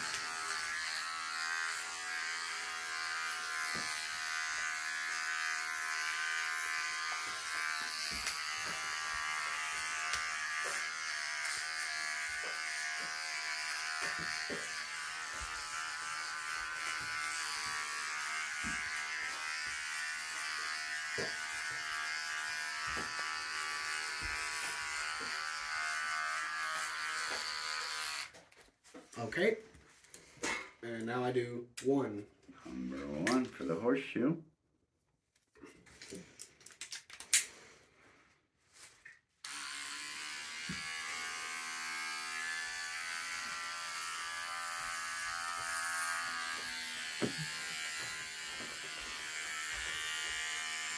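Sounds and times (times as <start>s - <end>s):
electric hair clippers buzzing: 0.0s - 28.3s, 39.4s - 50.9s.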